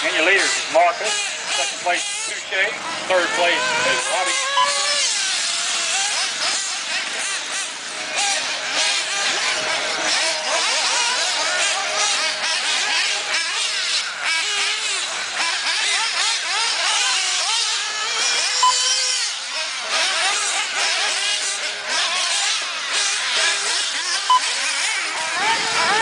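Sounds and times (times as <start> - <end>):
rc buggy engines revving: 0.0 - 26.0
short beep: 4.6 - 4.9.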